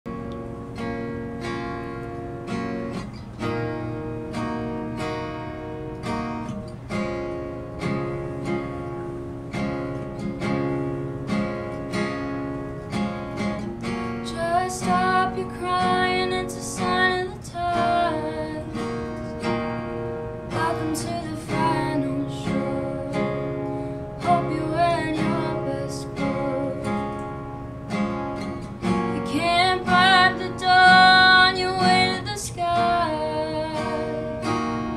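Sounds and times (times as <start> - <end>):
acoustic guitar chords: 0.1 - 34.9
woman singing: 14.1 - 19.4, 20.4 - 27.2, 29.1 - 34.9.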